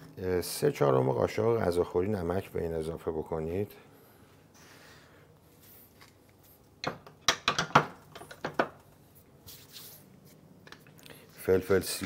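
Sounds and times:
utensils knocking on countertop: 0:06.8 - 0:08.8
hands rubbing together: 0:09.5 - 0:10.4.

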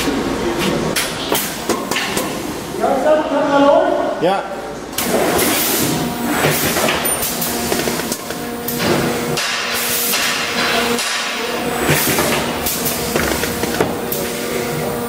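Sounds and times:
machine hum: 0:00.0 - 0:15.0.

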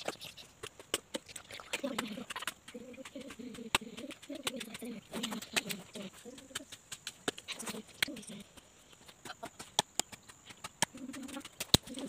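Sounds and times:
dove cooing: 0:01.5 - 0:06.8, 0:07.5 - 0:08.6, 0:10.8 - 0:12.0.

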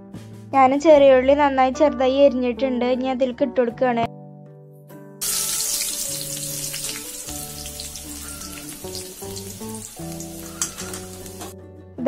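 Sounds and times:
oil popping: 0:05.2 - 0:11.5
shallots sizzling in oil: 0:05.2 - 0:11.6.

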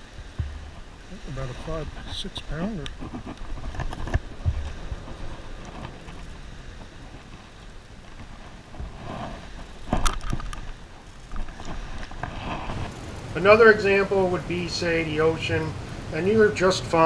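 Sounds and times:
water splashing and dripping: 0:00.0 - 0:08.6
low steady rumble: 0:00.0 - 0:17.0.

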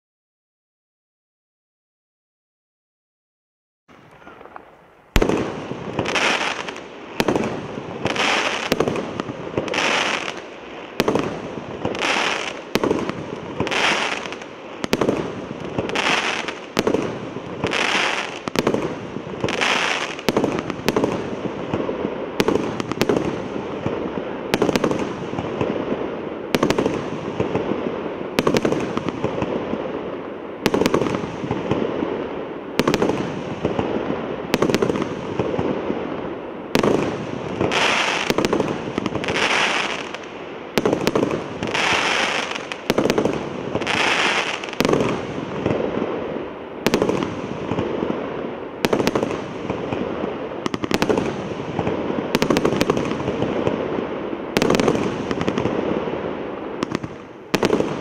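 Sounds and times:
fireworks bangs: 0:03.9 - 0:58.0
fireworks crackle: 0:03.9 - 0:58.0
hissing fireworks bursts: 0:03.9 - 0:58.0.

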